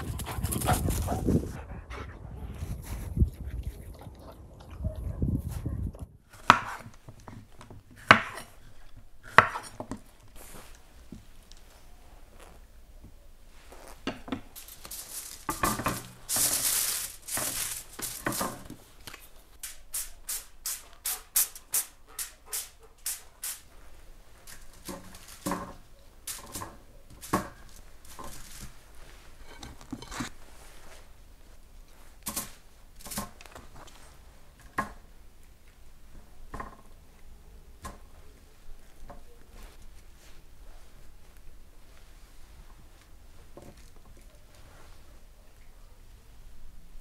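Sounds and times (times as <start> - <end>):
aluminium foil crinkling: 13.5 - 30.8.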